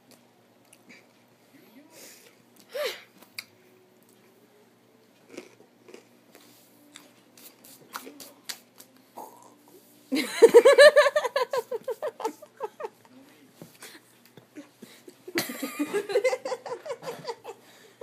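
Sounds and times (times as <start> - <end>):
chewing crunches and mouth clicks: 5.2 - 6.2.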